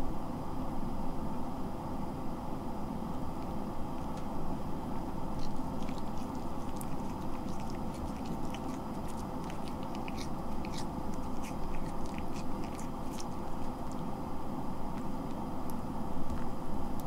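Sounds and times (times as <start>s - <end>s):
low background hum: 0.0s - 17.0s
cat chewing and licking: 5.0s - 15.4s.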